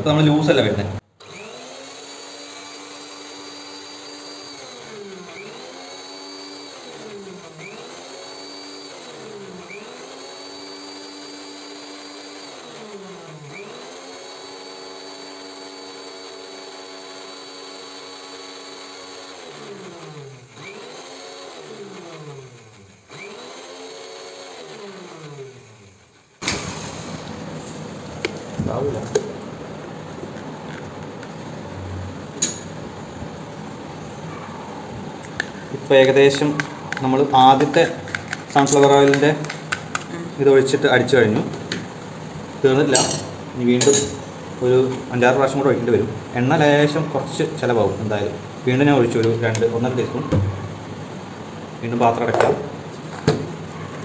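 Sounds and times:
mixer grinder motor whining: 1.2s - 54.0s.

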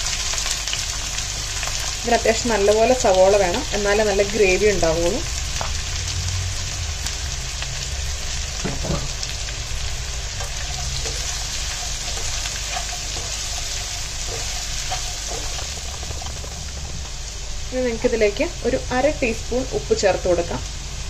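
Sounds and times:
onions sizzling in oil: 0.0s - 21.0s
spatula stirring in a pan: 8.7s - 17.6s.

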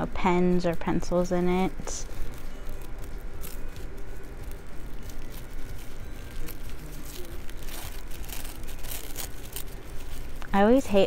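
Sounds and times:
low background hum: 0.0s - 11.0s
tissue paper crinkling: 0.7s - 11.0s.

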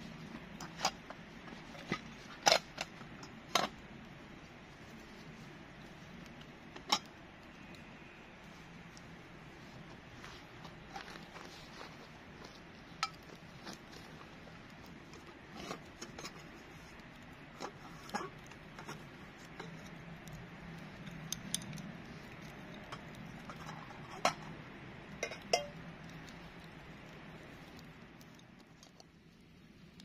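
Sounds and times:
campfire crackling: 0.0s - 30.0s
cloth pouch rustling: 9.6s - 14.4s.

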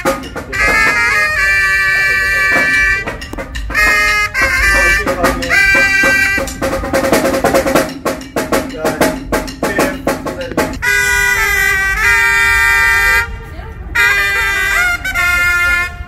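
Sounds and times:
rapid drum hits: 0.0s - 1.3s, 2.4s - 10.9s
brass horns chord stabs: 0.0s - 7.5s.

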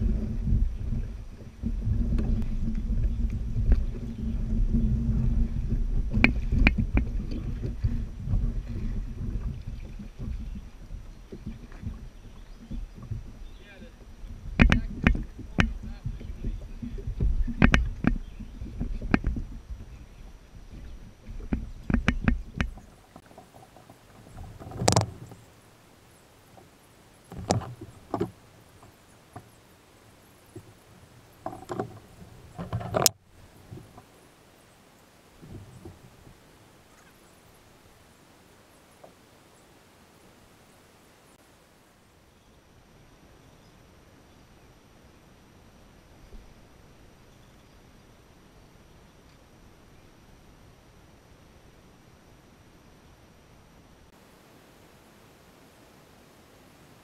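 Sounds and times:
wind rumbling on microphone: 0.0s - 43.4s.

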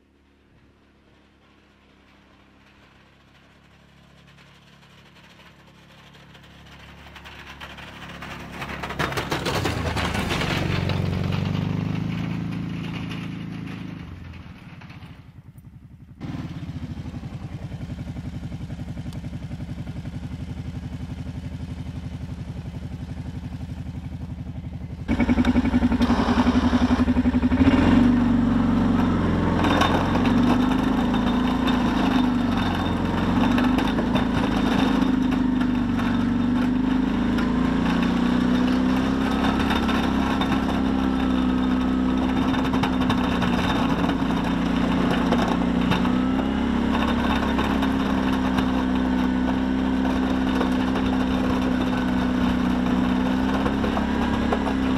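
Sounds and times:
quad bike engine running: 0.0s - 54.9s.

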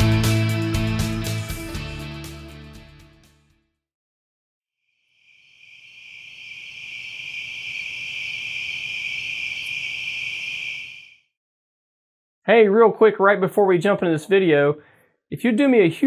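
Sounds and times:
crickets chirring: 5.0s - 11.2s.

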